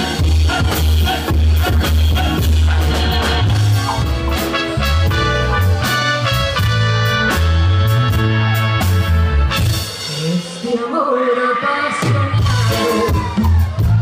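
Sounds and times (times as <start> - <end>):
keyboard chords: 0.0 - 10.0
drum kit: 0.0 - 11.0, 11.9 - 14.0
bass line: 0.0 - 11.2, 11.9 - 14.0.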